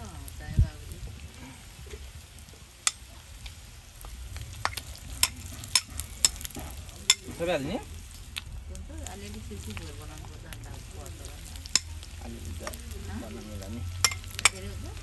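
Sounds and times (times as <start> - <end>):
food frying in a pan: 0.0 - 15.0
utensil clicking against pan: 4.4 - 7.4, 11.6 - 12.8, 14.0 - 14.7.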